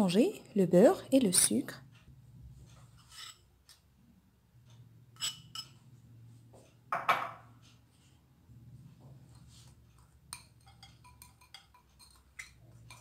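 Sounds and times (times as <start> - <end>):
kitchenware clinking on dish: 5.2 - 5.8, 10.3 - 13.0.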